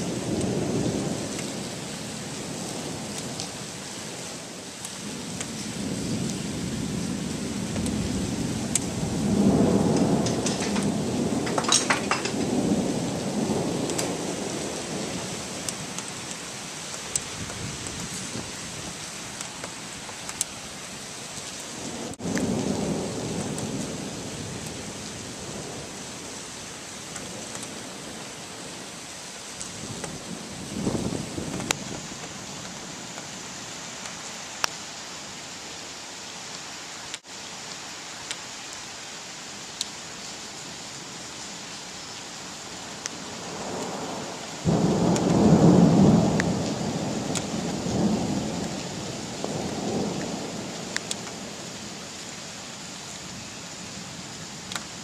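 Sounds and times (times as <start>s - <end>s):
steady rain: 0.0s - 55.0s
rolling thunder: 5.0s - 16.1s, 21.8s - 26.4s, 29.7s - 32.3s, 43.4s - 51.9s.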